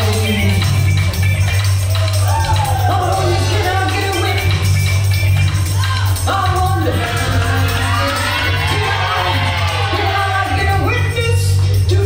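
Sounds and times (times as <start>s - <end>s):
person singing: 0.0s - 0.9s, 2.3s - 4.6s, 5.8s - 12.0s
house music with heavy bass: 0.0s - 12.0s.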